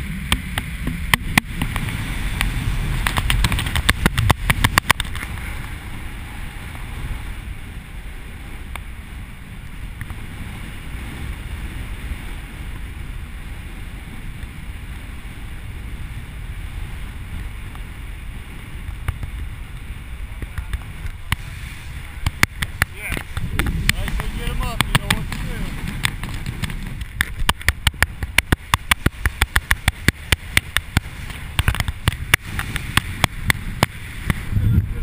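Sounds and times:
wind buffeting microphone: 0:00.0 - 0:35.0
rapid clicks: 0:00.3 - 0:05.4.

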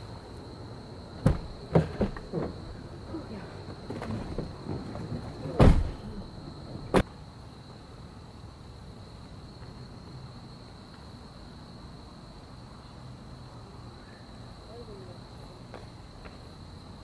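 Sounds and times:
crickets trilling: 0:00.0 - 0:17.0
car door shutting: 0:01.2 - 0:02.7, 0:03.9 - 0:06.1.

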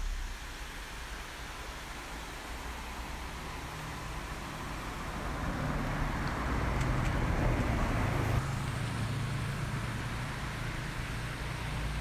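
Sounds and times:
vehicle passing on highway: 0:04.5 - 0:12.0.

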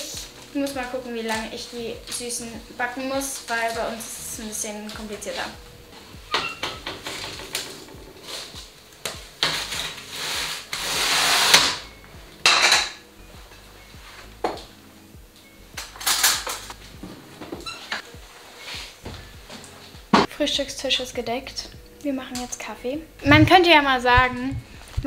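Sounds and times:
metal clanks and knocks: 0:06.3 - 0:08.2.

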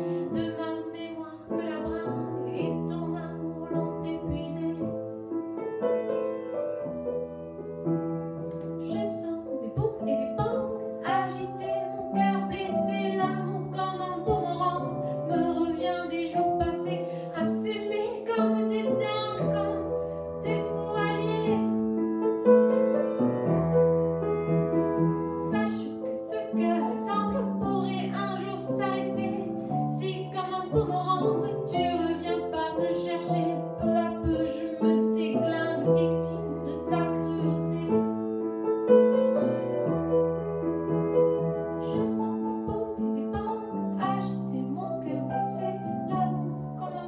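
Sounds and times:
woman singing: 0:00.0 - 0:05.0, 0:08.8 - 0:21.8, 0:25.4 - 0:38.2, 0:41.8 - 0:47.0
grand piano chords: 0:00.0 - 0:47.0.

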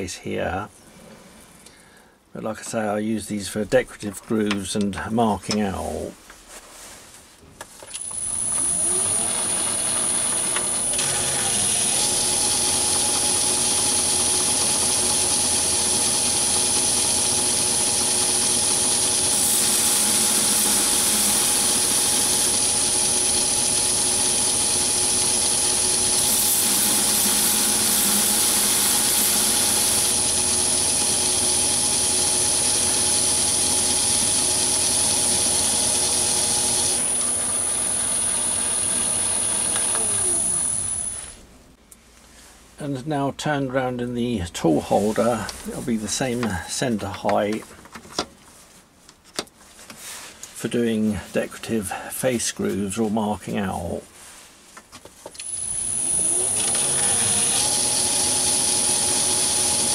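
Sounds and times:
metal lathe running: 0:08.0 - 0:41.3, 0:55.4 - 0:59.9
tool cutting metal hiss: 0:19.2 - 0:23.8, 0:25.9 - 0:30.4.

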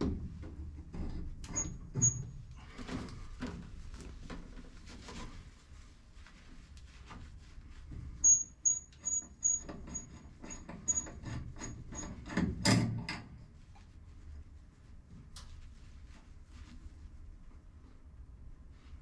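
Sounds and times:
short high squeaks: 0:01.6 - 0:02.3, 0:08.2 - 0:11.8
cloth rustling and rubbing: 0:03.2 - 0:08.3, 0:13.6 - 0:19.0.

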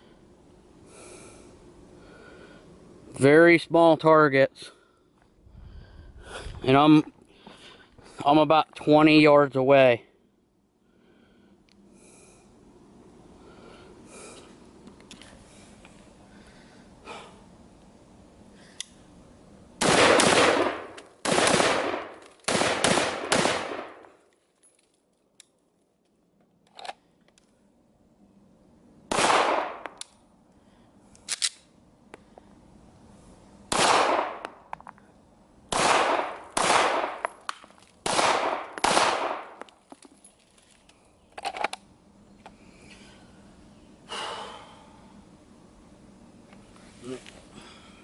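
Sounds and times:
gunshots echoing: 0:19.8 - 0:24.0, 0:29.1 - 0:29.8, 0:33.7 - 0:34.4, 0:35.7 - 0:37.3, 0:38.0 - 0:39.6.

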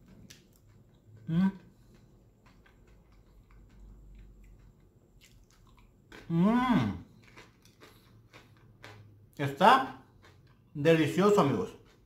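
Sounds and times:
person chewing crunchy food: 0:00.0 - 0:12.0
person humming mmm: 0:01.2 - 0:01.7, 0:06.3 - 0:07.1.

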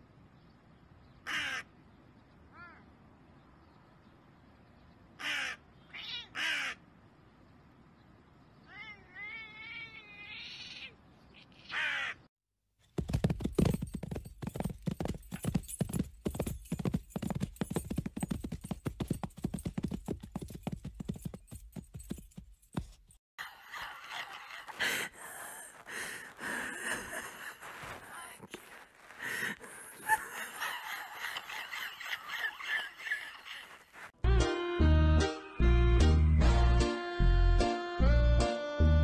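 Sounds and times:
crow calling: 0:01.2 - 0:01.7, 0:05.2 - 0:06.9, 0:10.6 - 0:12.3
rapid irregular thumping and rustling: 0:12.9 - 0:23.2.

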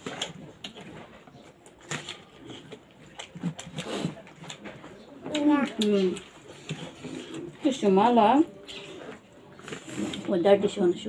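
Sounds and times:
wet chewing and lip-smacking: 0:00.0 - 0:07.6.

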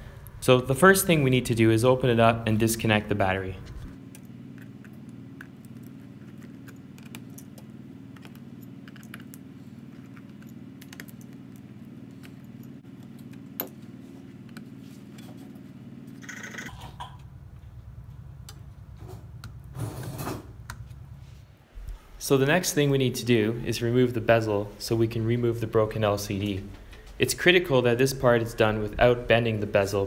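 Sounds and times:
steady low hum: 0:00.0 - 0:30.0
handling noise: 0:03.5 - 0:16.1.

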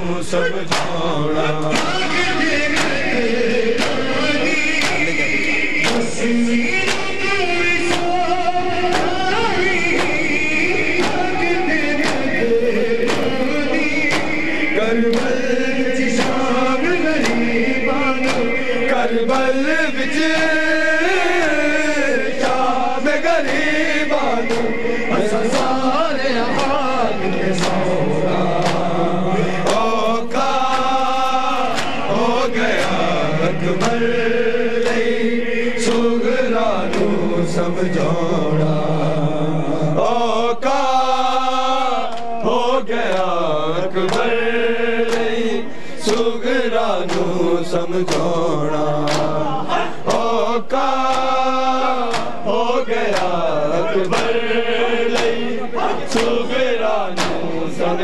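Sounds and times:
men chanting in a group: 0:00.0 - 0:58.0
hand-on-chest slaps: 0:00.7 - 0:03.1, 0:03.7 - 0:08.3, 0:08.9 - 0:12.4, 0:13.0 - 0:16.6, 0:17.2 - 0:17.5, 0:18.1 - 0:18.6, 0:23.4 - 0:24.8, 0:25.4 - 0:25.8, 0:26.4 - 0:27.9, 0:28.6 - 0:28.9, 0:29.6 - 0:33.1, 0:33.7 - 0:34.1, 0:34.8 - 0:35.2, 0:35.8 - 0:36.1, 0:36.9 - 0:37.2, 0:42.0 - 0:43.3, 0:44.1 - 0:44.3, 0:46.0 - 0:46.3, 0:47.0 - 0:47.4, 0:48.0 - 0:48.4, 0:49.0 - 0:49.4, 0:52.0 - 0:52.4, 0:53.0 - 0:53.4, 0:54.0 - 0:54.5, 0:55.1 - 0:56.4, 0:57.1 - 0:57.5.

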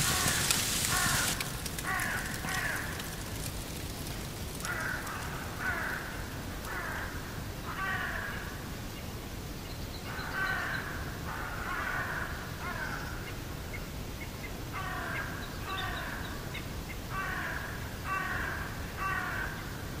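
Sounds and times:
crows cawing: 0:00.0 - 0:03.3, 0:04.6 - 0:08.5, 0:10.4 - 0:13.0, 0:14.8 - 0:16.2, 0:17.1 - 0:19.7.

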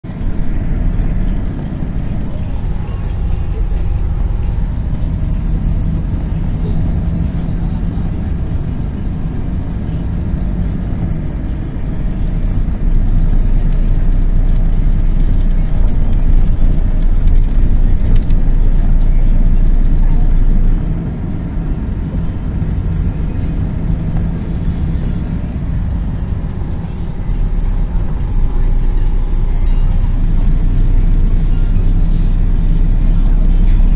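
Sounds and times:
bus engine and road drone: 0:00.0 - 0:33.9.

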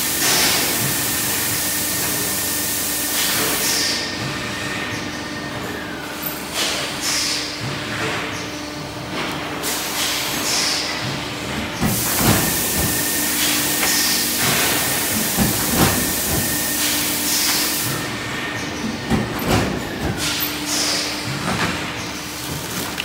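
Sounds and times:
punching press machine hum: 0:00.0 - 0:23.0
loud hiss: 0:11.9 - 0:18.0.

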